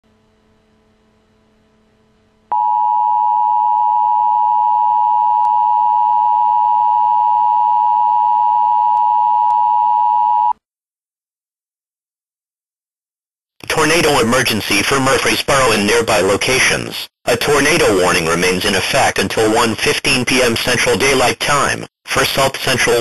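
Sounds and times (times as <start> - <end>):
faint hum: 0.1 - 10.5.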